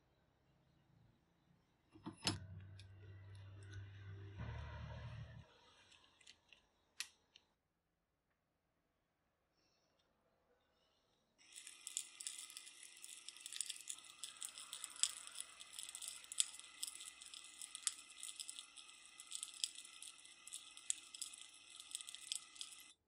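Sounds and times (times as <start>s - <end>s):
drill spinning: 11.4s - 23.0s
stones rattling in glass jar: 11.4s - 23.0s.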